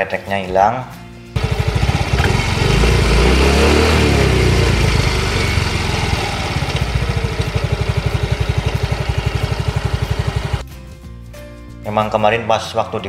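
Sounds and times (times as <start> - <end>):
scooter engine idling: 1.4 - 10.6.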